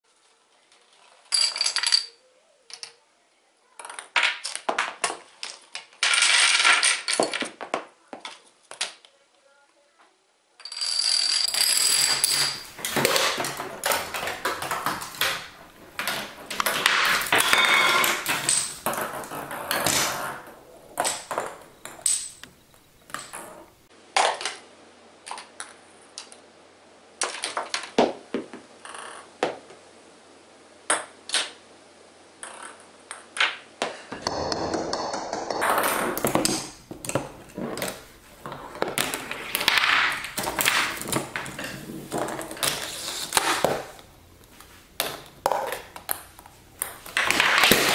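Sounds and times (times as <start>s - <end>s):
clicks and knocks of small objects: 3.8s - 9.1s, 10.6s - 24.6s, 33.2s - 47.9s
dominoes toppling: 4.0s - 7.7s, 10.6s - 22.5s, 23.1s - 23.6s, 34.2s - 47.9s
balls rolling on plastic track: 10.6s - 23.8s, 34.2s - 47.9s.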